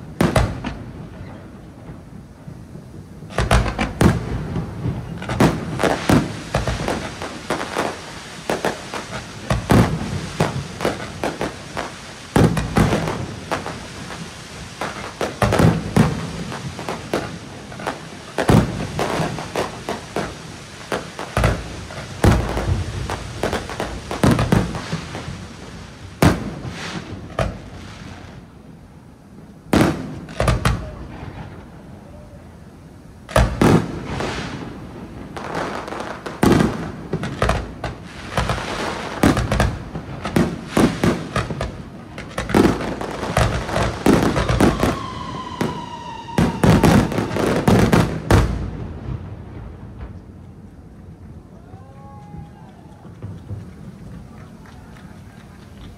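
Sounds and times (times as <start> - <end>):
fireworks bangs and booms: 0.0 - 55.9
firework whistle: 29.8 - 32.6, 38.2 - 48.7, 51.5 - 55.6.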